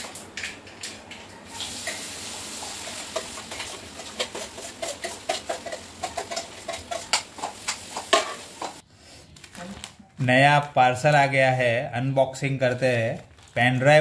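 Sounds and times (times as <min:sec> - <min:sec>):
vegetables sizzling in oil: 0:01.5 - 0:08.8.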